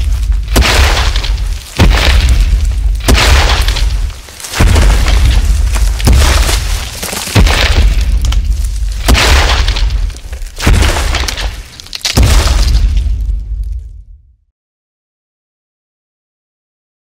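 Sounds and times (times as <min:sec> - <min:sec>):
deep booming hits with rumble: 0:00.0 - 0:11.6, 0:12.2 - 0:14.4.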